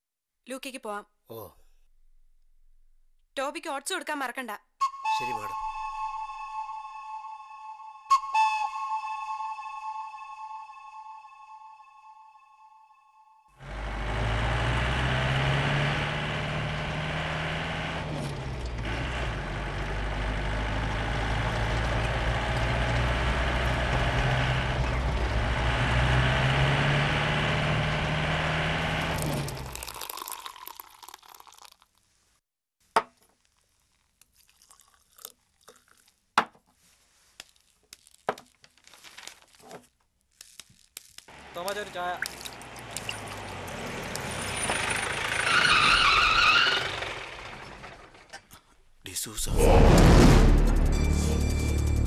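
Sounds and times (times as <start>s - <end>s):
jeep engine driving past: 13.6s - 29.8s, 41.3s - 48.3s.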